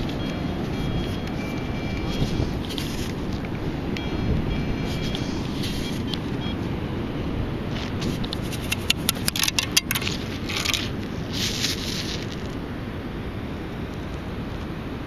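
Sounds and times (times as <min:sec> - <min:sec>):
steady low rumble: 0:00.0 - 0:15.0
grit rattling in sand scoop: 0:08.0 - 0:12.6
sand pouring hiss: 0:10.2 - 0:12.6.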